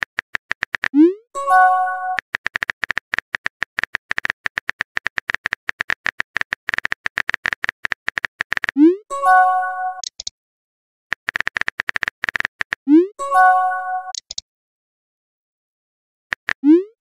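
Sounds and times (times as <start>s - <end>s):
phone notification chime: 1.4s - 2.2s, 9.1s - 10.0s, 13.2s - 14.2s
keyboard tap clicks: 10.0s - 10.3s.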